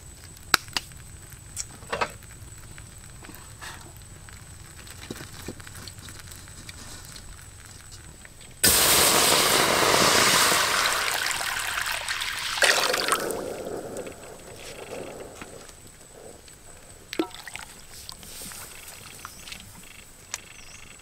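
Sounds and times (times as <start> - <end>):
bubbling simmer: 0.2 - 20.6
water sizzling in a hot wok: 8.6 - 15.8.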